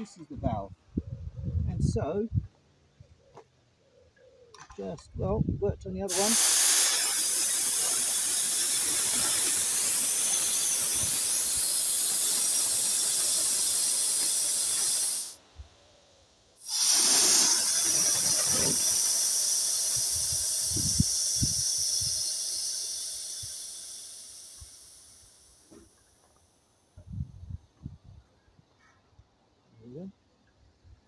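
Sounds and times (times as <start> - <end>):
pressurised gas hissing from keg: 6.1 - 15.4, 16.6 - 26.3.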